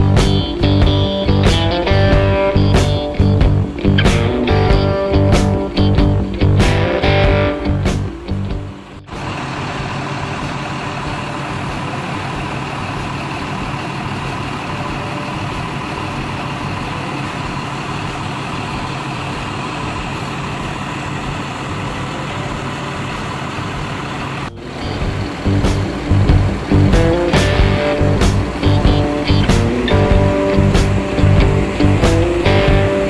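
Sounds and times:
music: 0.0s - 9.1s, 24.5s - 33.0s
bus diesel engine idling: 0.0s - 33.0s.

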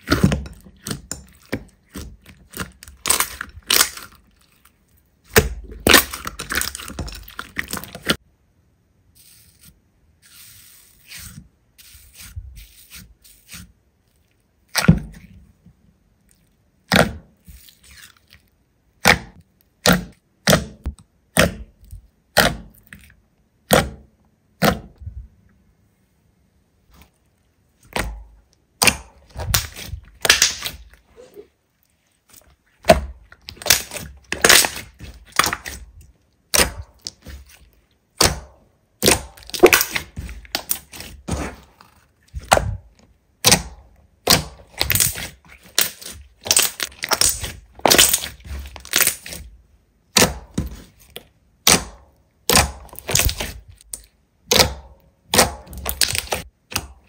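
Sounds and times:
slime crackling when squeezed: 44.2s - 49.4s.

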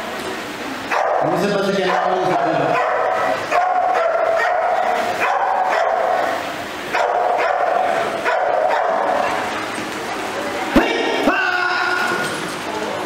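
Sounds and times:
dog barking: 0.9s - 9.4s.

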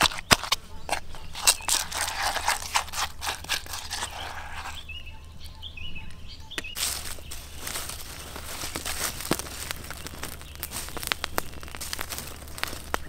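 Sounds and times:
paste scraping in stone mortar: 0.0s - 4.9s
small birds chirping: 0.0s - 13.0s.

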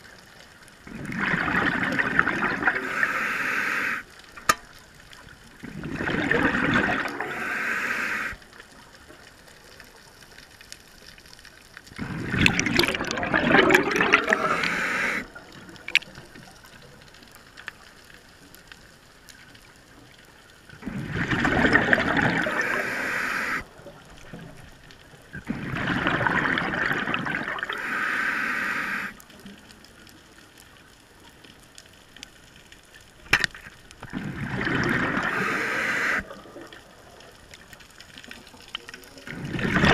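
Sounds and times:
scuba breath bubbling underwater: 0.8s - 4.1s, 5.6s - 8.4s, 12.0s - 16.0s, 20.7s - 23.9s, 25.3s - 29.2s, 34.0s - 36.8s, 39.2s - 39.9s
faint clicks: 14.0s - 20.7s.

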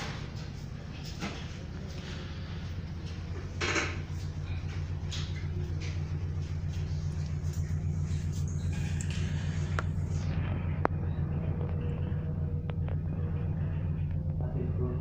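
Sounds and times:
ship engines droning: 0.0s - 15.0s.

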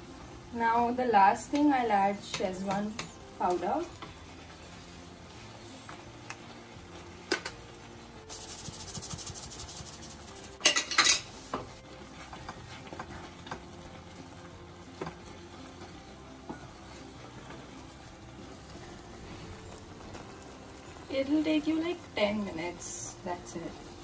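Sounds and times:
wooden spatula scraping frying pan: 8.3s - 13.7s.

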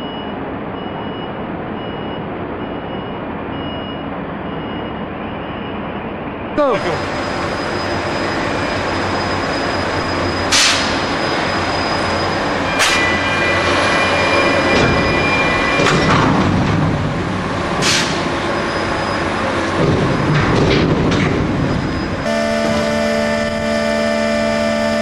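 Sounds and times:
crane machinery din: 0.0s - 25.0s
ringing metal squeal: 7.0s - 16.6s, 18.0s - 20.3s, 21.4s - 23.5s.

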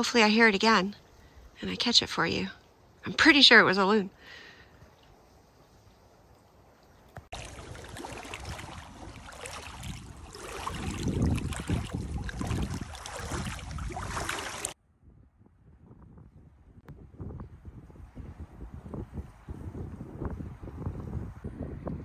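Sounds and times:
lake water lapping at shore: 0.7s - 14.8s
wind rumbling on microphone: 7.0s - 22.0s.

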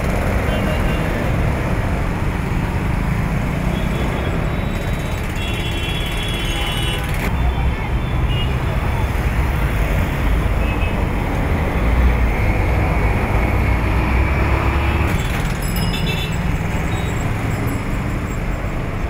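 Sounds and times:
motorcycles passing: 0.0s - 5.8s
bus passing: 8.6s - 19.0s.

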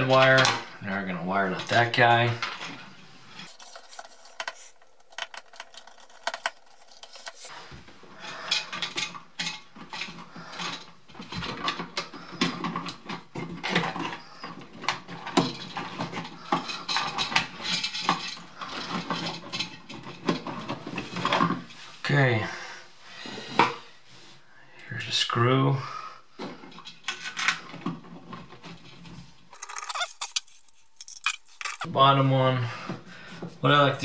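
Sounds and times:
small clicks and rattles of wiring: 3.4s - 7.5s.

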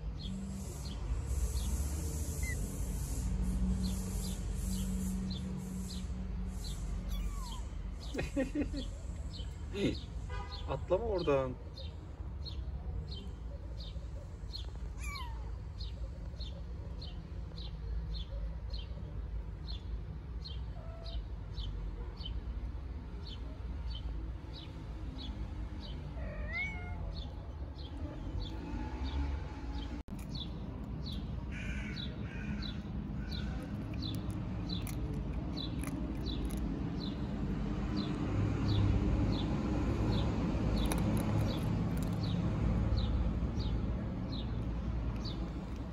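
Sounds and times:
kittens mewing: 7.1s - 8.1s, 14.8s - 15.8s, 26.1s - 27.4s.

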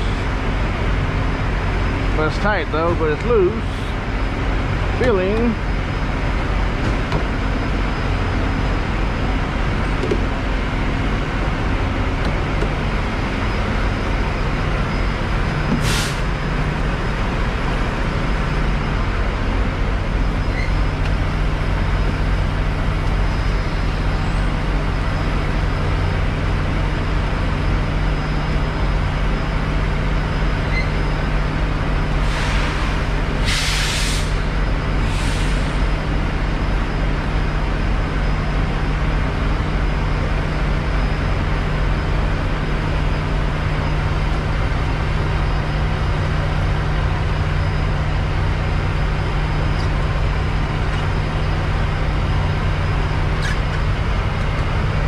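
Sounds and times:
diesel engine idling: 0.0s - 55.0s
short air hisses: 15.8s - 16.3s, 32.2s - 35.8s.

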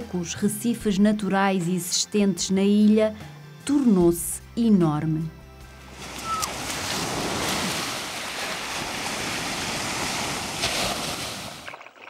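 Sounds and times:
rushing water: 5.8s - 12.0s.

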